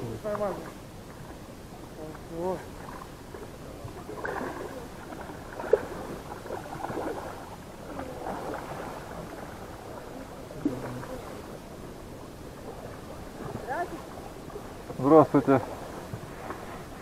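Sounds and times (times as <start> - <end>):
water movement: 0.0 - 17.0.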